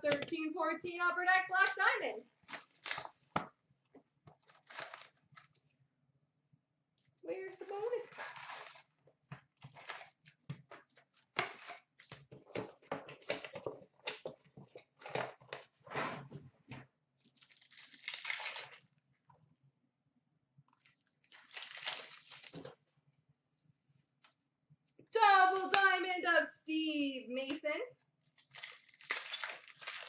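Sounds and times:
wrapper crinkling and tearing: 2.4s - 3.3s, 4.4s - 5.6s, 7.6s - 9.0s, 17.2s - 18.9s, 20.8s - 22.8s, 28.2s - 30.0s.

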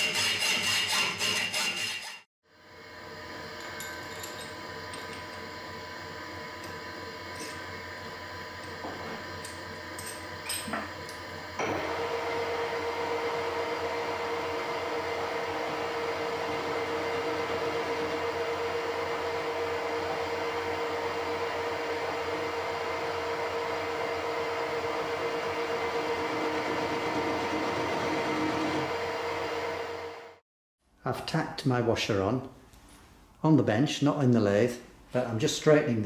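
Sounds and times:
metal lathe whining: 3.4s - 30.3s.

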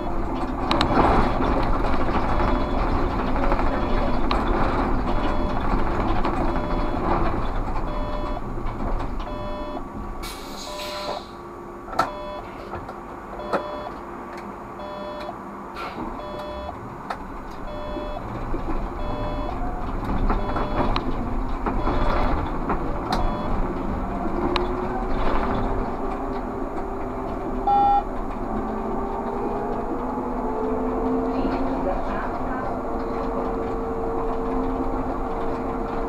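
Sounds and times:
electronic cab beep: 0.0s - 0.3s, 2.2s - 3.0s, 3.6s - 5.7s, 6.4s - 8.4s, 9.2s - 9.9s, 10.6s - 11.2s, 12.0s - 12.5s, 13.4s - 14.0s, 14.8s - 15.4s, 16.2s - 16.8s, 17.6s - 18.2s, 18.9s - 19.6s, 20.3s - 21.0s, 21.8s - 22.3s, 23.1s - 23.6s, 27.7s - 28.1s
trolleybus running noise: 0.0s - 36.0s.

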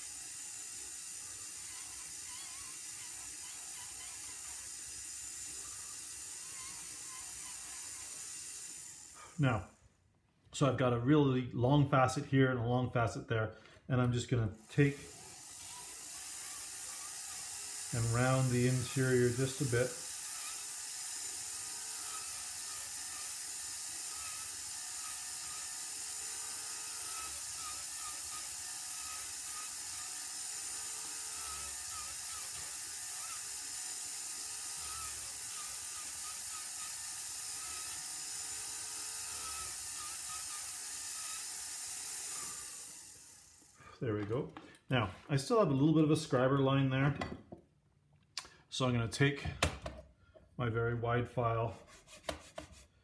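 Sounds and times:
rotary tool grinding wax: 0.0s - 9.8s, 13.9s - 45.6s.

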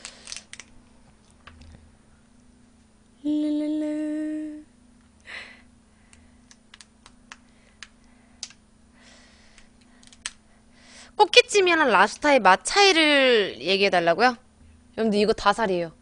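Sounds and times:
lobster shell cracking: 0.0s - 1.6s, 6.1s - 8.6s, 9.6s - 10.4s
woman humming: 3.2s - 5.6s.

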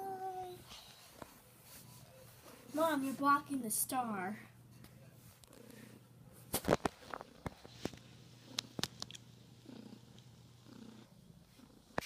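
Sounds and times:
cat purring: 7.0s - 12.0s.

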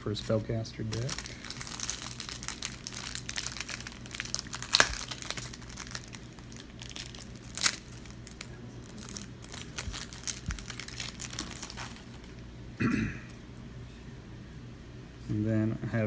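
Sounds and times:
foil wrapper crinkling: 0.0s - 12.4s
cards rustling: 0.2s - 12.4s.

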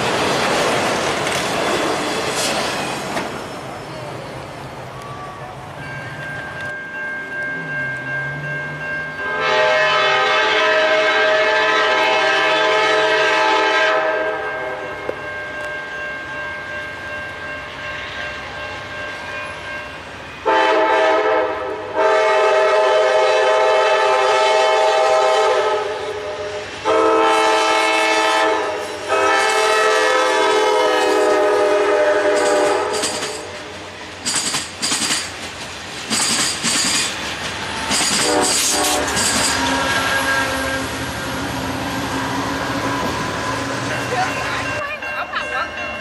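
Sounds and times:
train coaches passing: 0.0s - 46.0s
train air horn blasts: 9.2s - 15.0s, 20.4s - 33.5s, 38.2s - 43.7s.

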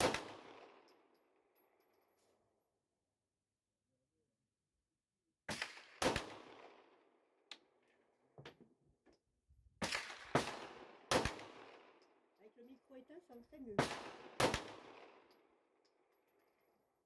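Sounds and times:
pistol shots with echo: 0.0s - 0.9s, 5.5s - 7.0s, 9.8s - 12.3s, 13.8s - 15.3s.

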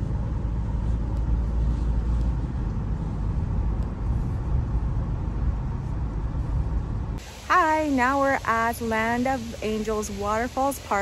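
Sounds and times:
car road and engine rumble: 0.0s - 11.0s.

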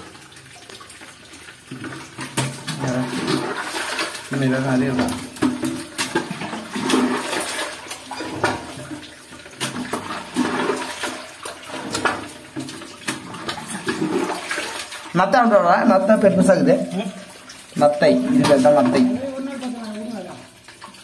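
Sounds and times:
muddy water sloshing: 1.7s - 21.0s.

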